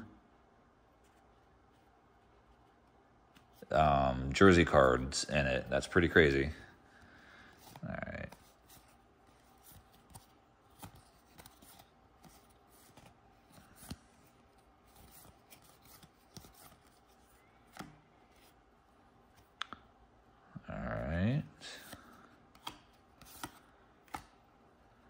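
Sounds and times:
trading cards sliding and clicking: 1.0s - 6.1s, 7.0s - 18.6s, 21.6s - 24.5s
card snaps: 21.9s - 24.4s.

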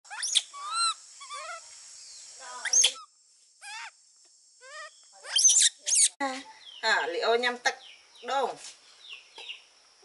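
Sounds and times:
baby monkeys squeaking: 0.1s - 1.7s, 2.5s - 4.0s, 4.6s - 6.2s.

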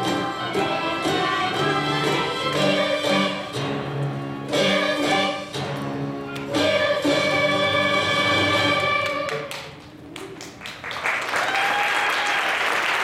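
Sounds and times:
instrumental accompaniment: 0.0s - 9.3s
children's choir singing: 0.0s - 9.5s.

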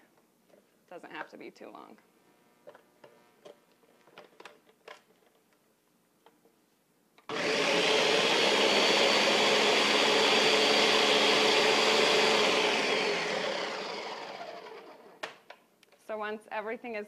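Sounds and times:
blender motor running: 7.3s - 15.2s.

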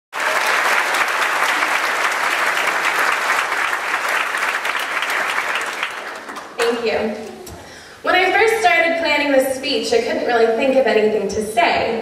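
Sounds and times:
audience applauding: 0.1s - 7.5s.

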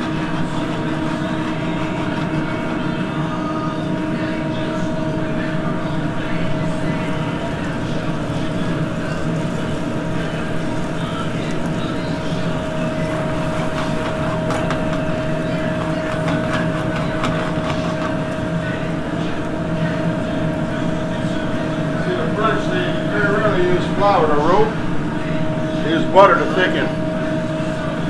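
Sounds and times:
constant hum: 0.0s - 28.0s
gas burners roaring: 0.0s - 28.0s
sauce bubbling in a pan: 6.9s - 22.0s.

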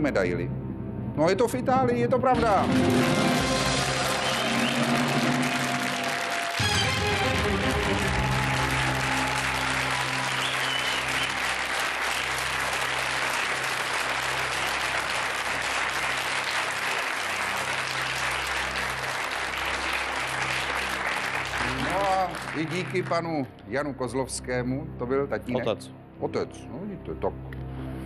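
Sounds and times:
game show background music: 1.1s - 27.9s
audience applauding: 2.6s - 23.4s.

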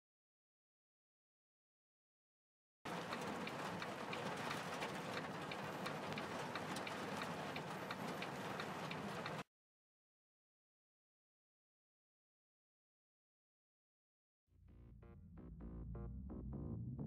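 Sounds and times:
heavy rain on windshield and roof: 2.9s - 9.4s.

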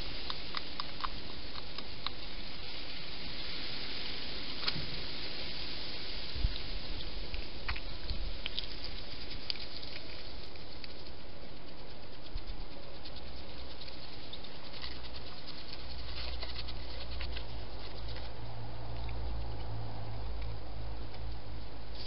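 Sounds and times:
steady hiss: 0.0s - 19.6s
hedgehog chewing clicks: 0.2s - 2.3s, 7.3s - 22.0s.

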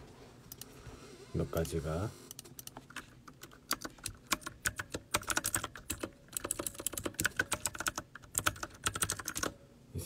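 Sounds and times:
typing on computer keyboard: 2.3s - 9.6s.

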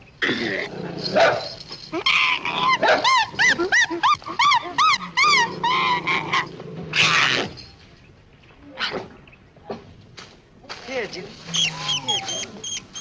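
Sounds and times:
dog yelping: 1.2s - 7.5s, 11.5s - 13.0s.

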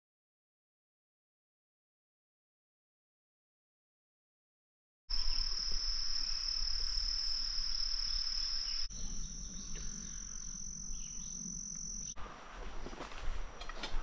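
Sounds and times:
insect chorus drone: 5.1s - 14.0s.

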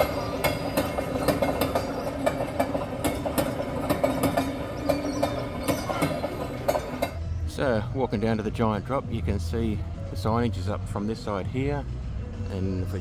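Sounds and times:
train wheels clicking on rails: 0.0s - 7.2s
train engine hum: 0.0s - 7.5s.

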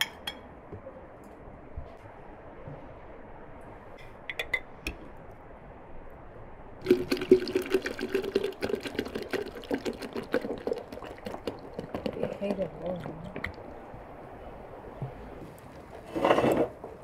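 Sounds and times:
juice pouring into glass pitcher: 6.8s - 13.9s.

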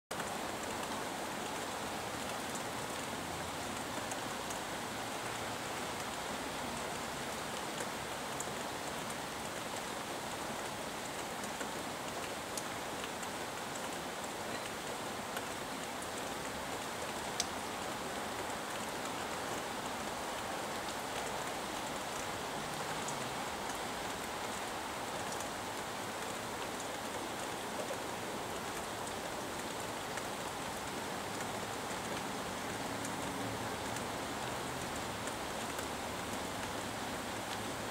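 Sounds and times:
sharp ticks of raindrops: 0.1s - 37.9s
steady rain falling: 0.1s - 37.9s.

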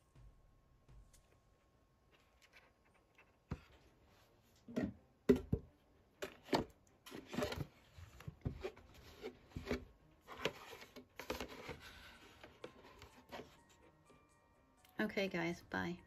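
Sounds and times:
plastic pails knocking and clattering: 4.7s - 13.4s.

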